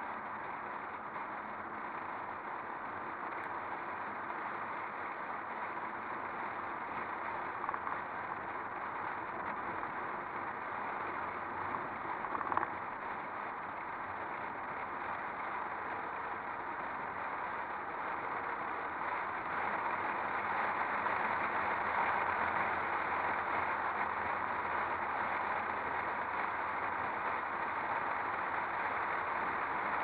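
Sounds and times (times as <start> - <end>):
road and wind noise: 0.0 - 30.0.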